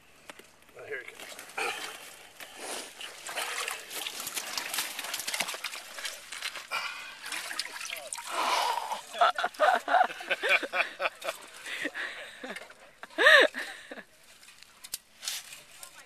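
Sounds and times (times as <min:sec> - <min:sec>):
water sloshing and splashing: 0:01.1 - 0:11.7.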